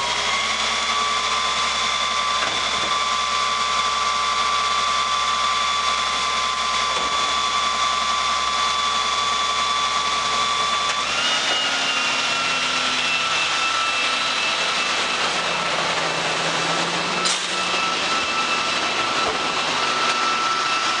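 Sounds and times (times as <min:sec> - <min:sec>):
mechanical whine: 0:00.0 - 0:21.0
truck engine running: 0:11.8 - 0:21.0.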